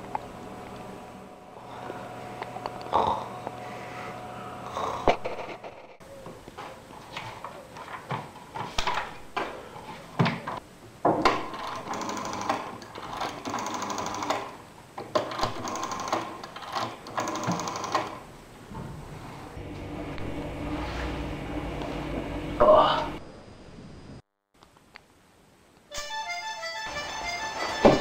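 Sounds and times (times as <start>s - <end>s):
small machine rattling: 11.5s - 18.2s.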